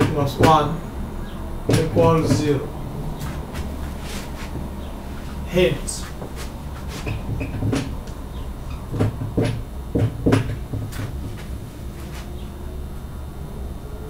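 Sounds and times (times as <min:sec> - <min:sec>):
low room hum: 0:00.0 - 0:14.0
marker writing on whiteboard: 0:01.7 - 0:02.6, 0:03.2 - 0:08.0.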